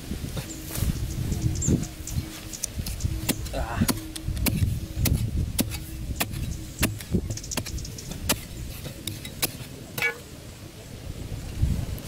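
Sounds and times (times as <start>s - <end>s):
digging bar striking soil: 2.6s - 10.2s.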